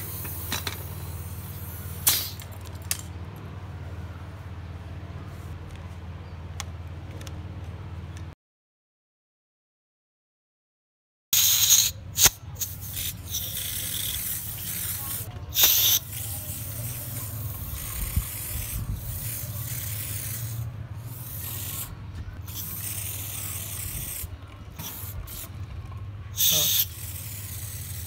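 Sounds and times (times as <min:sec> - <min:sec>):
spray bottle hissing: 0:00.0 - 0:02.4, 0:11.4 - 0:21.9, 0:22.5 - 0:25.5, 0:26.4 - 0:28.0.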